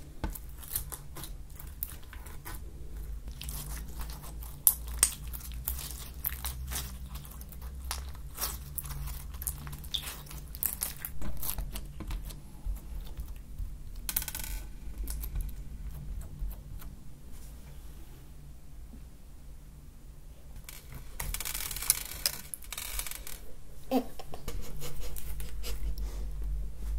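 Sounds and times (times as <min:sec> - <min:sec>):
foam slime crackling and popping: 0:00.0 - 0:14.4.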